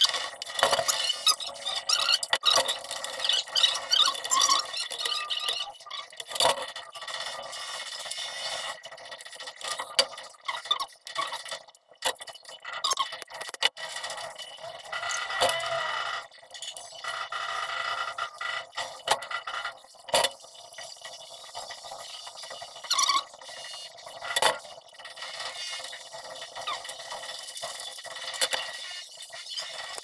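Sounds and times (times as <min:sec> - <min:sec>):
plastic rubbing squeaks: 0:00.0 - 0:07.6, 0:09.6 - 0:11.6, 0:12.6 - 0:20.3, 0:22.8 - 0:27.1.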